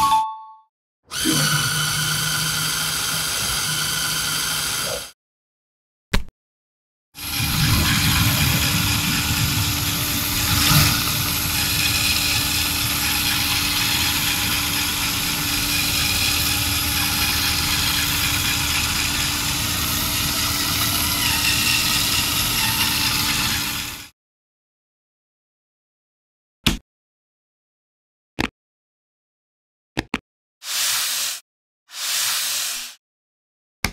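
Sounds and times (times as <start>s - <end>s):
electric motors whirring: 7.2s - 24.1s.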